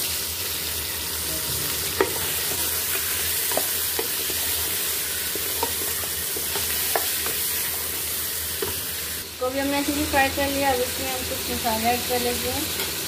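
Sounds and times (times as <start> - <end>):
chicken sizzling in oil: 0.0 - 13.0
wooden spoon knocking pot: 5.4 - 7.4.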